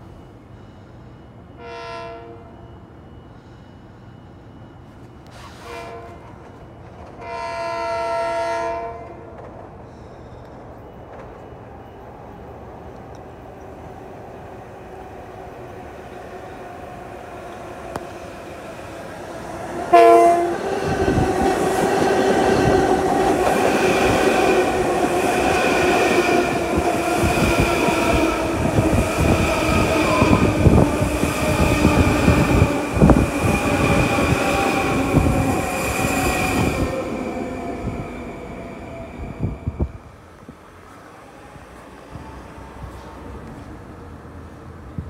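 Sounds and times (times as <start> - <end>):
train wheel-on-rail rumble: 0.0 - 45.0
train horn blast: 1.6 - 2.8, 5.4 - 6.4, 7.2 - 9.3, 19.9 - 21.2
rail clicks: 9.0 - 14.0, 15.2 - 41.0.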